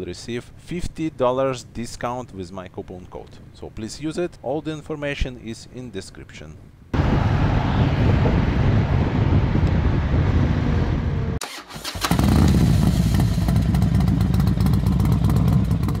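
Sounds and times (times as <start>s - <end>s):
motorcycle engine rumbling: 7.0s - 16.0s.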